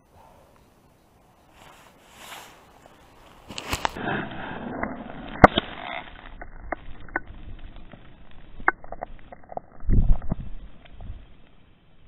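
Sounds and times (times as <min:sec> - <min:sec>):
rubbing against fur: 0:01.5 - 0:04.0.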